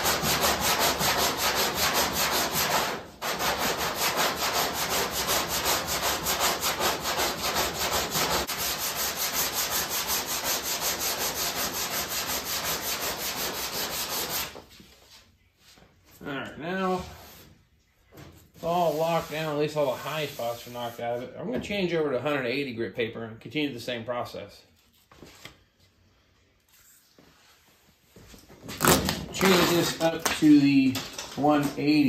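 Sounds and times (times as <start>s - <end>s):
sandpaper rasping on filler: 0.0s - 14.6s, 18.6s - 21.2s, 28.7s - 30.1s.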